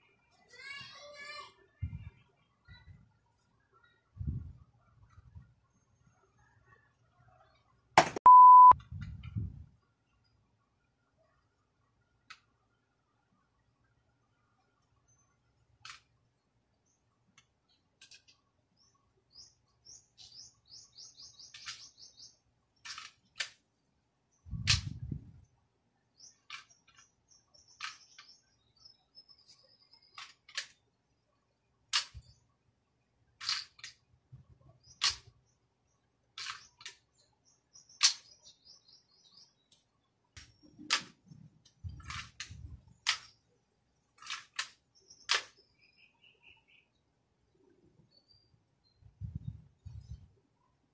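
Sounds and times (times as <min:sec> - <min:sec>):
toy pistol plastic clicks: 0:31.9 - 0:32.2, 0:33.4 - 0:34.0, 0:35.0 - 0:35.3, 0:36.4 - 0:37.0, 0:38.0 - 0:38.3, 0:42.0 - 0:43.4, 0:44.2 - 0:45.6.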